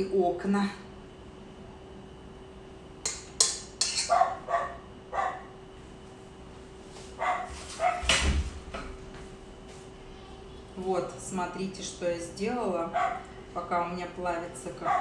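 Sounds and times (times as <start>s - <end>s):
dog barking outside: 4.1s - 5.6s, 7.2s - 8.1s, 12.9s - 13.3s, 14.8s - 15.0s.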